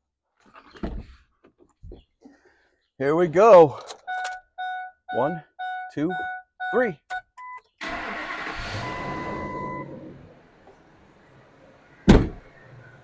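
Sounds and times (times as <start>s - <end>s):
short beep: 4.0s - 7.7s, 8.8s - 9.9s
engine cranking and starting: 7.8s - 10.3s.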